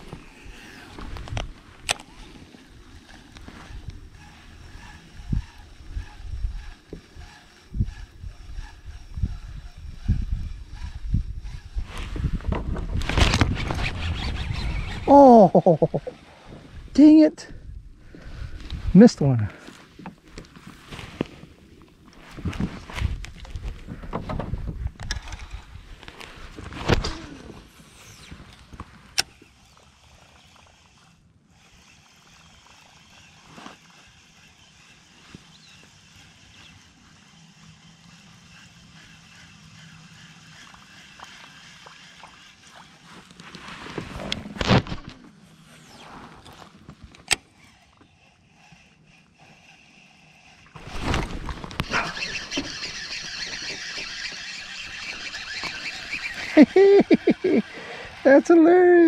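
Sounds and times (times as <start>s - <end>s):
fishing reel being cranked: 0.0s - 11.9s, 13.0s - 16.2s, 25.0s - 26.2s, 26.9s - 43.6s, 45.8s - 59.0s
fishing rod swing rush: 12.9s - 16.2s, 49.4s - 58.2s.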